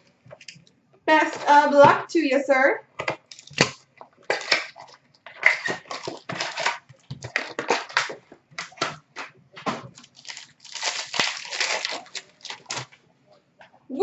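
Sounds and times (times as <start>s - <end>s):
foil wrapper crinkling and tearing: 3.3s - 8.8s, 9.9s - 13.0s.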